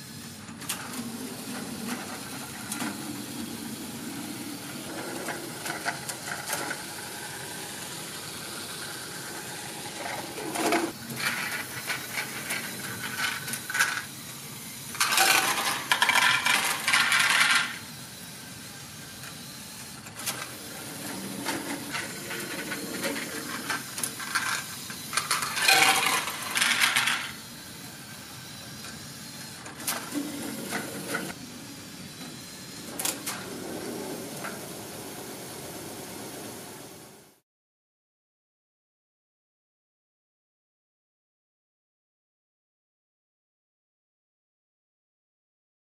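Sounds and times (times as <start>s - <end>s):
toy motors and gears whirring: 0.0s - 37.4s
plastic balls clattering out: 15.0s - 17.8s, 25.2s - 27.3s.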